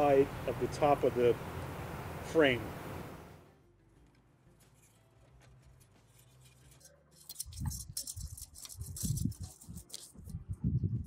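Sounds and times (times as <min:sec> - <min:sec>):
metal strap being handled: 0:04.6 - 0:10.3.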